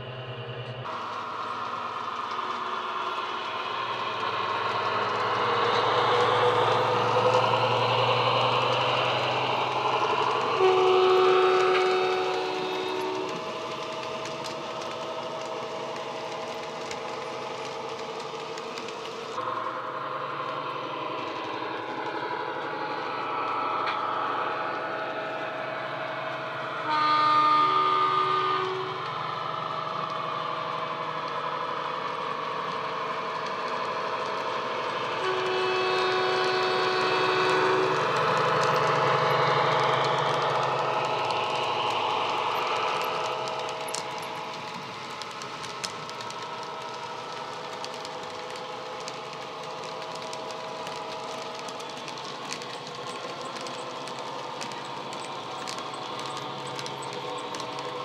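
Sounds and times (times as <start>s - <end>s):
locomotive horn: 10.3s - 13.5s, 26.7s - 29.1s, 35.2s - 38.8s.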